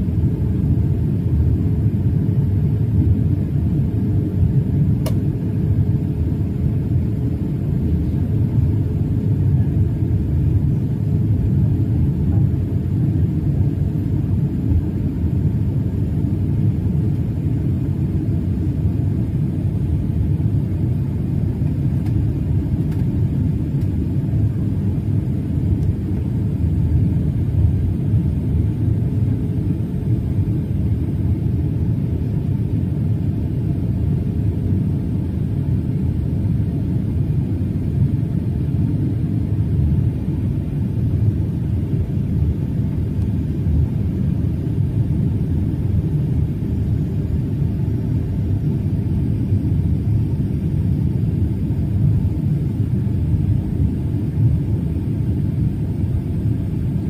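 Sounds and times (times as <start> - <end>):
airplane cabin rumble: 0.0 - 57.0.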